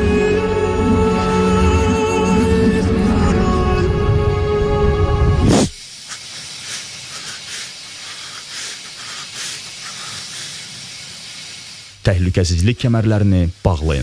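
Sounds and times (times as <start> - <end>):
steady hiss: 5.4 - 14.0.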